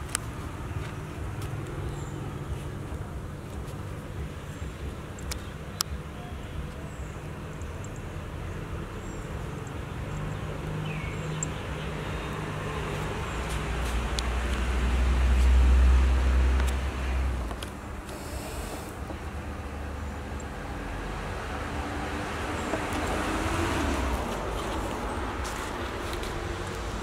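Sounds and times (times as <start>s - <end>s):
low engine rumble: 0.0s - 27.0s
motor vehicle passing: 9.8s - 17.5s, 18.1s - 27.0s.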